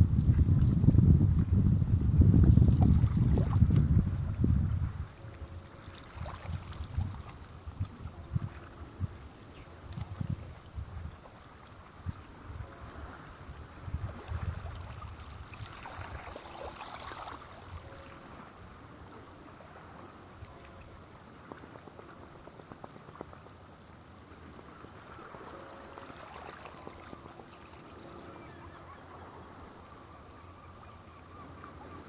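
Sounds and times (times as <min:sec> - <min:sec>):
wind buffeting microphone: 0:00.0 - 0:23.6
sea water lapping: 0:02.3 - 0:32.0.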